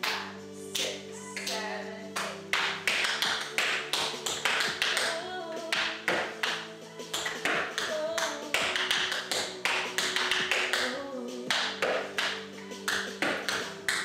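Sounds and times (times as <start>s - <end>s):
music: 0.0s - 14.0s
tap shoes striking floor: 12.9s - 14.0s.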